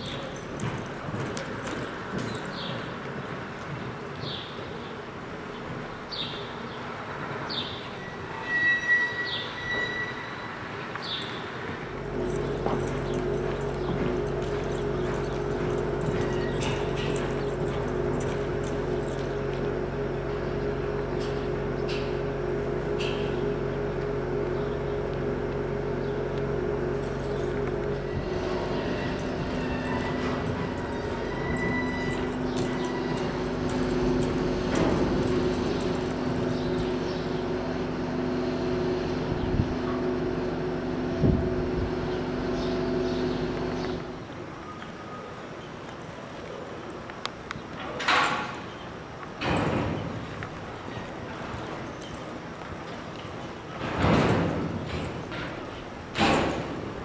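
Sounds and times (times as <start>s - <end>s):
horse hooves on dirt: 0.0s - 7.4s, 10.8s - 57.0s
steady machine hum: 11.8s - 44.4s.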